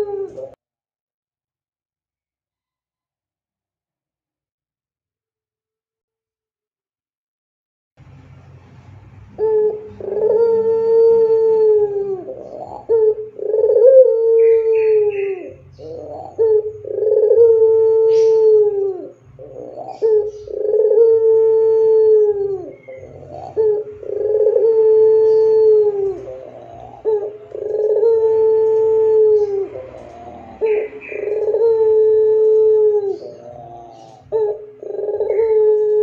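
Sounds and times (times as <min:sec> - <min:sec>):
dove cooing: 0:00.0 - 0:00.6, 0:09.3 - 0:36.0.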